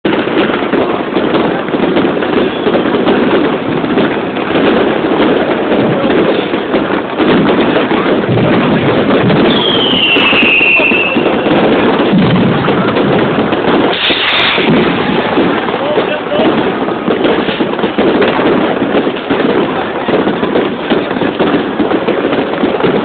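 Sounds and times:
fireworks and firecrackers banging: 0.0 - 23.0
high falling whistle: 9.5 - 11.3.

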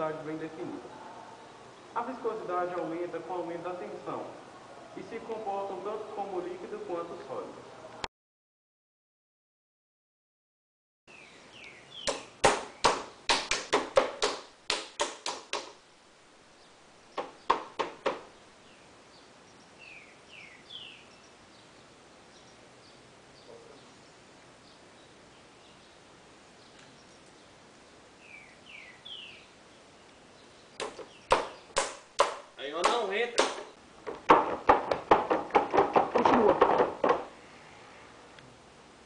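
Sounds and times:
small birds chirping: 11.1 - 13.6, 16.4 - 33.9.

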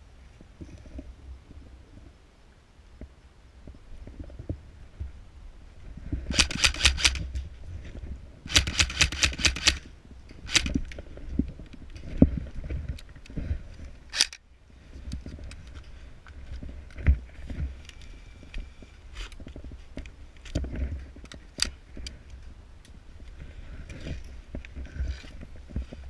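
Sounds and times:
airsoft rifle firing: 6.3 - 7.2, 8.5 - 9.8, 10.5 - 10.7.

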